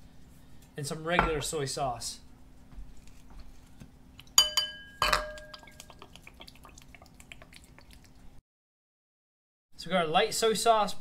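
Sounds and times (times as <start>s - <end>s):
glass bottle clinking on bowl: 4.4s - 5.9s
liquid trickling into bowl: 5.3s - 8.4s.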